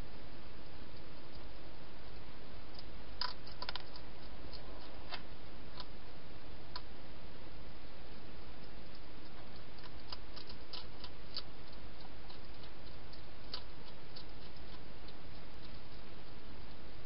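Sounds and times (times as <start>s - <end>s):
hedgehog eating clicks and crunches: 2.7s - 6.0s, 8.2s - 16.4s.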